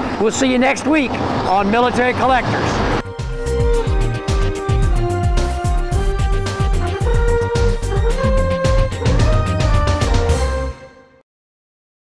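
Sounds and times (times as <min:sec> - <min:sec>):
music with quick drum beat: 0:03.0 - 0:10.7.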